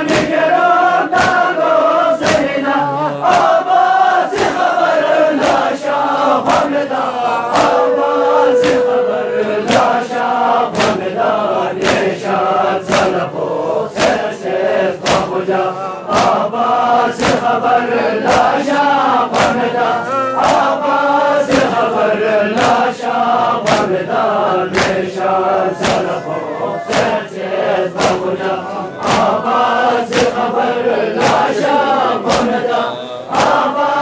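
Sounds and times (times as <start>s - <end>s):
hands slapping chests: 0.0s - 17.6s, 18.2s - 20.8s, 21.4s - 21.9s, 22.5s - 22.9s, 23.6s - 33.7s
men chanting in unison: 0.0s - 34.0s
voice holding a single note: 7.3s - 9.7s.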